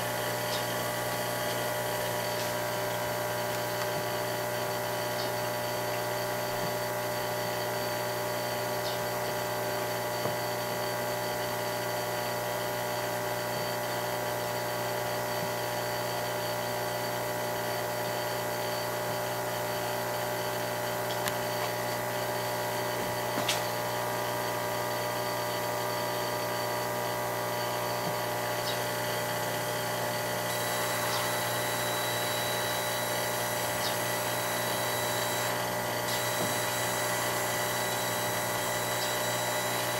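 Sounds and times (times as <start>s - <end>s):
laser cutter humming: 0.0s - 12.2s, 19.7s - 39.9s
high thin whine: 28.4s - 39.9s.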